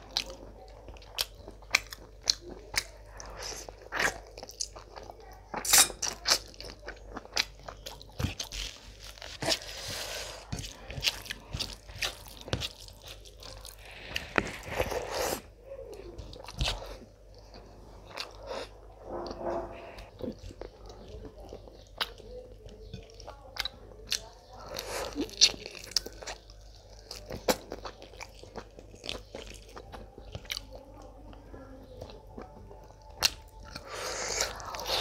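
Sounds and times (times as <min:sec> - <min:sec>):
chewing and biting: 0:00.0 - 0:15.4, 0:20.0 - 0:30.8.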